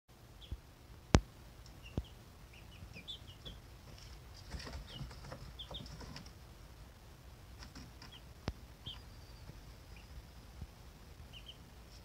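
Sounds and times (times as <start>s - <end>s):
chicks peeping: 0.2s - 12.0s.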